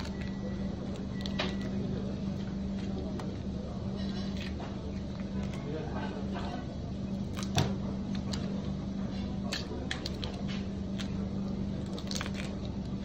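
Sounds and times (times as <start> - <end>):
prawn shells cracking: 0.0 - 1.8, 9.5 - 13.0
steady low hum: 0.0 - 13.0.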